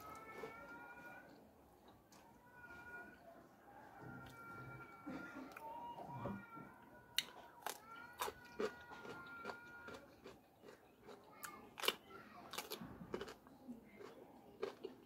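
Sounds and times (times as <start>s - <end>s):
close chewing: 7.2s - 15.0s.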